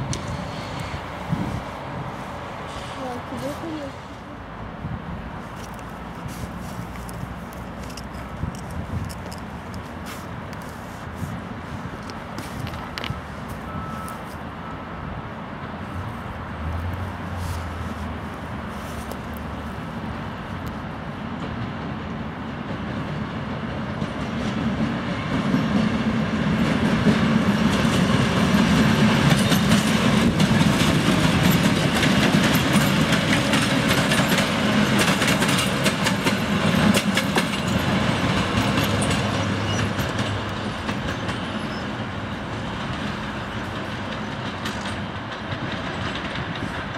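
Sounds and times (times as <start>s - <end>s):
diesel engines droning: 0.0s - 24.0s
wheels clacking over rail joints: 5.4s - 14.3s, 16.9s - 46.9s.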